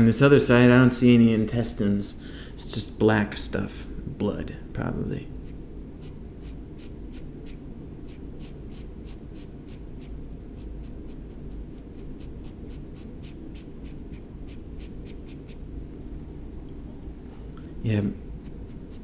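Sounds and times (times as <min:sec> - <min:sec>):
steady low hum: 0:00.0 - 0:19.0
pen nib scratching paper: 0:05.4 - 0:15.7, 0:18.3 - 0:19.0.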